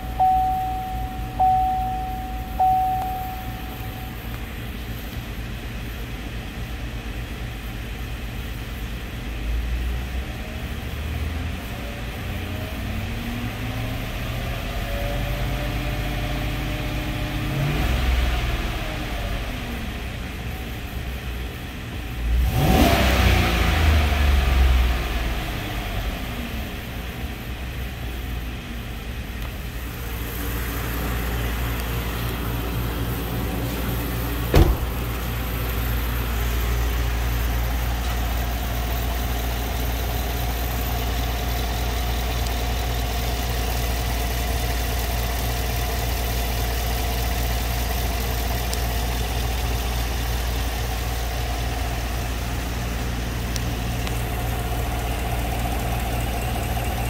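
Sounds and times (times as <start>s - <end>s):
truck engine revving and idling: 0.0s - 57.0s
sharp knock: 34.5s - 34.9s.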